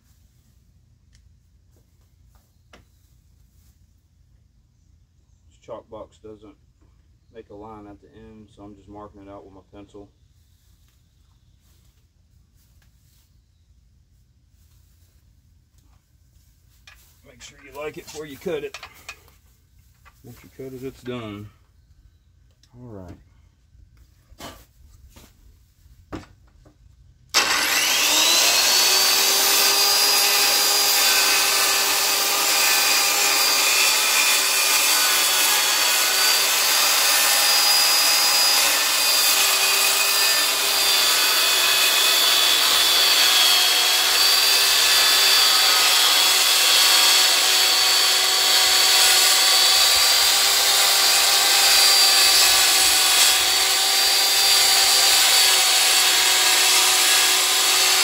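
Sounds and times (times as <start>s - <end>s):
circular saw cutting wood: 16.9s - 19.2s, 27.3s - 58.0s.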